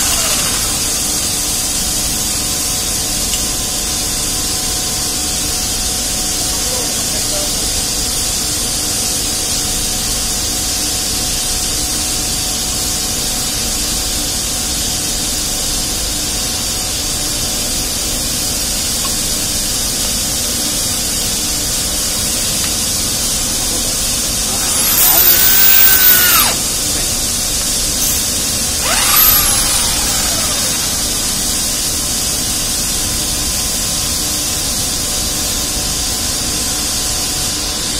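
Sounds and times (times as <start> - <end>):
electric drill spinning: 0.0 - 2.2, 23.9 - 32.7.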